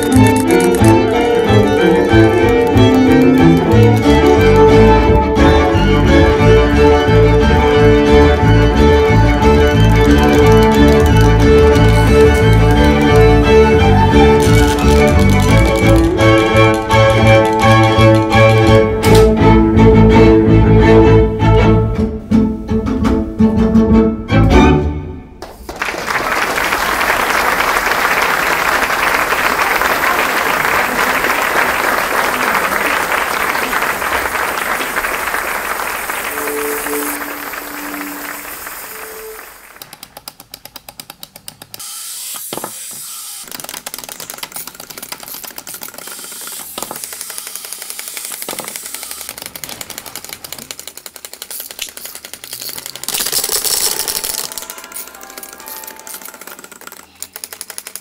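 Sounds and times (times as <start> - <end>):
wind-up toys clockwork clicking: 0.0 - 4.9, 9.8 - 18.5, 36.3 - 58.0
audience applauding: 0.0 - 18.4, 25.4 - 40.2, 51.8 - 58.0.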